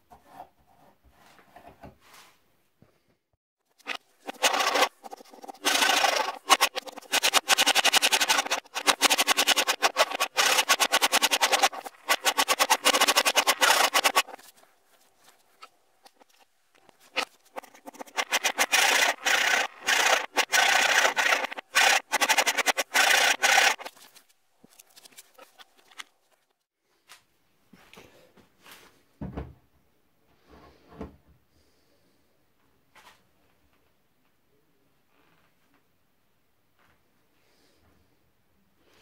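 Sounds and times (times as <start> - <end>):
file scraping wood: 3.8 - 14.5, 15.5 - 26.1.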